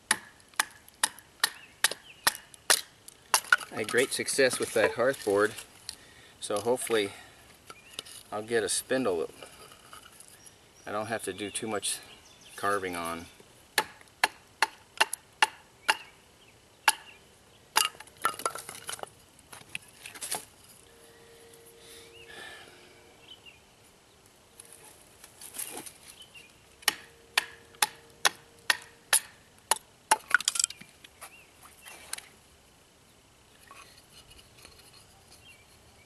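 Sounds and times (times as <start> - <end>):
knife chopping wood: 0.1 - 3.6, 13.8 - 16.1, 26.8 - 30.4.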